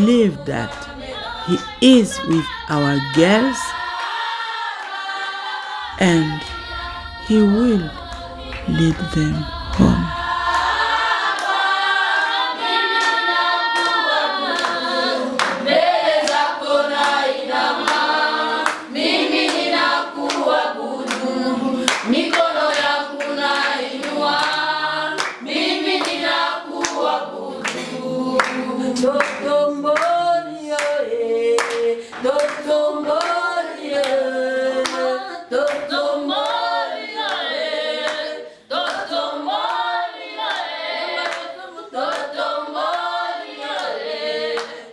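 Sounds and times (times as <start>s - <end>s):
group singing a cappella: 0.0s - 44.9s
hand claps: 16.2s - 17.2s, 21.1s - 24.6s, 25.2s - 26.2s, 26.8s - 30.2s, 31.6s - 33.4s.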